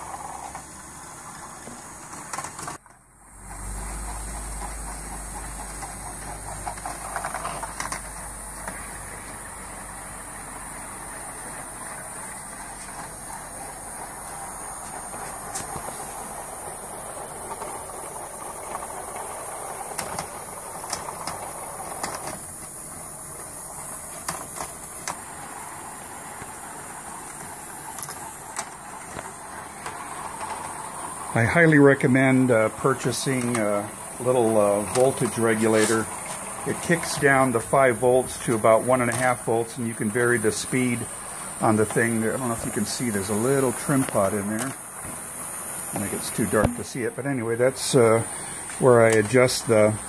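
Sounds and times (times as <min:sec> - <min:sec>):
small electric motor whirring: 0:00.0 - 0:50.0
steel balls rolling on plastic track: 0:00.0 - 0:50.0
balls clicking against track: 0:15.3 - 0:25.4, 0:26.4 - 0:44.8.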